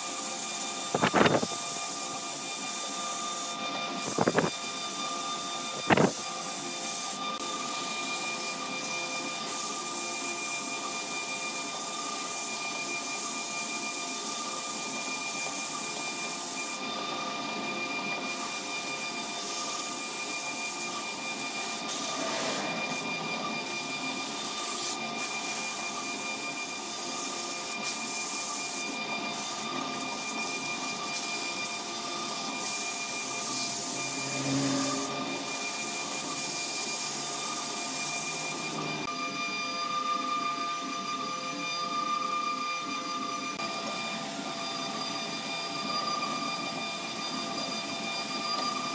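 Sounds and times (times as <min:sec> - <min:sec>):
sandpaper rubbing hiss on wood: 0:00.0 - 0:04.7, 0:05.7 - 0:07.7, 0:08.4 - 0:10.6, 0:11.6 - 0:16.8, 0:18.3 - 0:38.7
wood lathe whine: 0:00.0 - 0:48.9.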